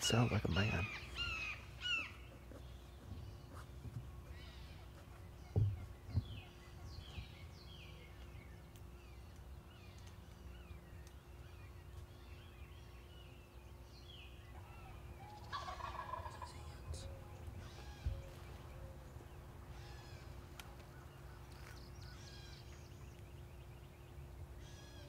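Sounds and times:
songbirds chirping: 0:00.0 - 0:25.0
dull thumps: 0:05.5 - 0:06.4
turkey gobbling: 0:15.3 - 0:16.5.

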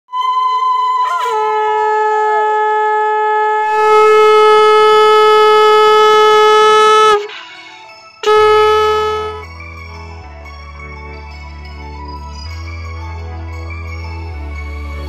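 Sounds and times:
conch shell blasts: 0:00.1 - 0:07.3, 0:08.2 - 0:09.4.

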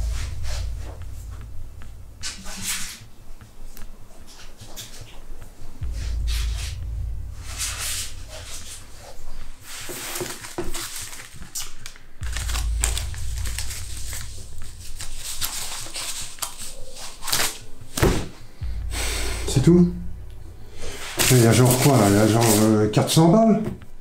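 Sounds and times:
low steady rumble: 0:00.0 - 0:03.9, 0:05.8 - 0:09.6, 0:12.2 - 0:16.4, 0:17.8 - 0:22.4
sharp crackles: 0:05.8 - 0:18.0.

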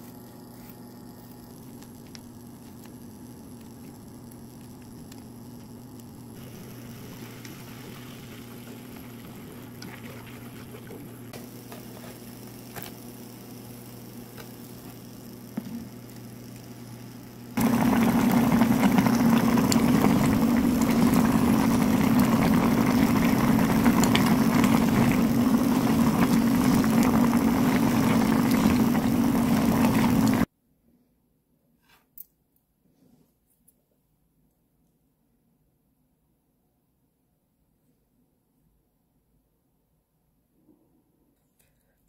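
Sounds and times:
broth boiling hard: 0:00.9 - 0:30.5
low hum: 0:01.0 - 0:11.5, 0:17.6 - 0:30.5.

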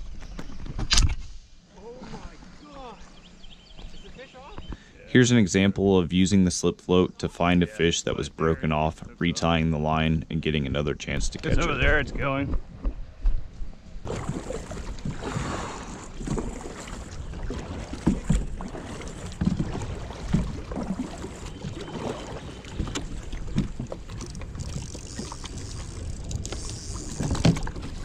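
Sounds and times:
paddle strokes through water: 0:01.7 - 0:04.9, 0:13.6 - 0:28.0
knocks and thumps on kayak: 0:14.1 - 0:25.6, 0:26.4 - 0:28.0.

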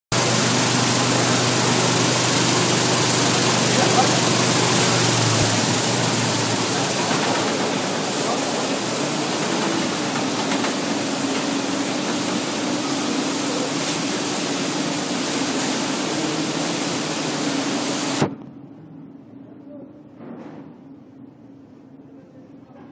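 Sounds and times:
machinery rushing noise: 0:00.1 - 0:18.3
motor hum: 0:00.1 - 0:18.4.

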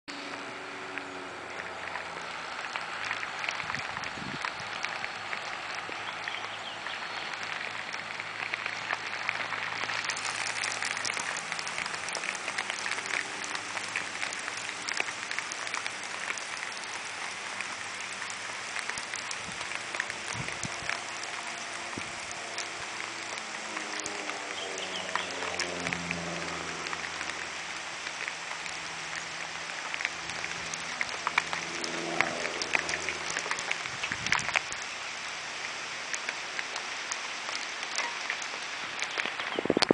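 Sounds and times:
distant plane engine drone: 0:00.1 - 0:35.5
steady crackling hiss: 0:00.1 - 0:39.9.

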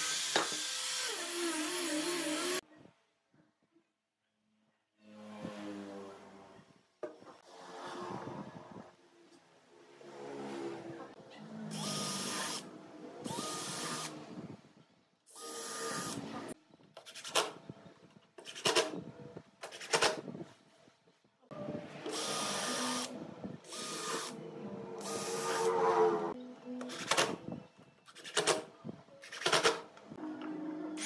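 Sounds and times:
cordless drill and impact driver: 0:00.0 - 0:02.6, 0:11.7 - 0:14.2, 0:15.3 - 0:16.3, 0:22.1 - 0:24.4.

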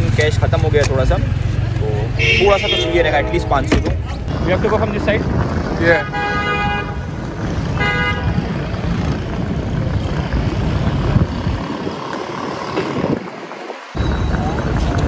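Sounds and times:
street traffic noise: 0:00.0 - 0:15.0
wind rumble on microphone: 0:01.6 - 0:15.0
car horn toot: 0:02.1 - 0:03.7, 0:06.0 - 0:07.0, 0:07.7 - 0:08.4.

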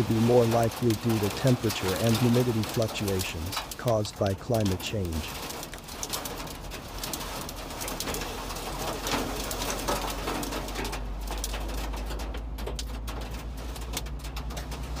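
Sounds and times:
heavy rain on windshield: 0:00.0 - 0:15.0.

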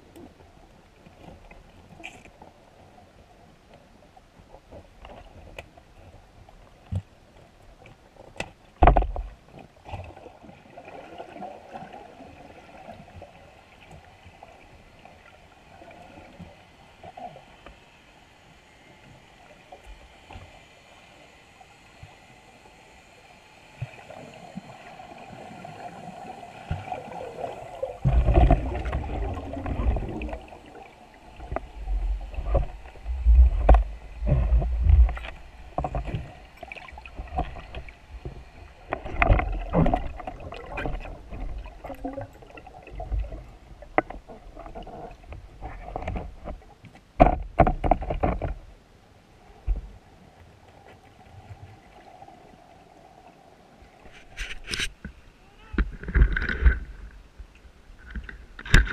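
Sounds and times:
faint water hiss: 0:00.0 - 0:58.9
muffled underwater thuds and knocks: 0:08.8 - 0:09.3, 0:28.0 - 0:30.4, 0:31.4 - 0:36.3, 0:37.2 - 0:42.0, 0:43.1 - 0:48.7.

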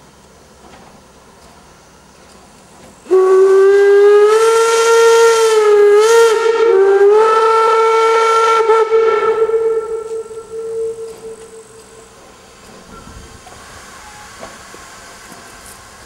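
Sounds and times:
steam hissing: 0:01.2 - 0:16.0
steam locomotive whistle: 0:03.0 - 0:14.5.

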